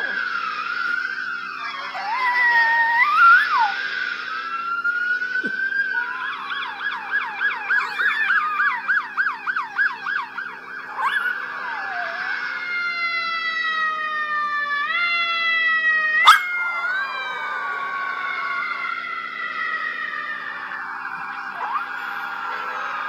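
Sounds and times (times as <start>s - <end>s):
dog howling: 0.0s - 4.6s, 5.4s - 23.0s
steady low hum: 0.0s - 15.0s
police siren wailing and yelping: 0.0s - 23.0s.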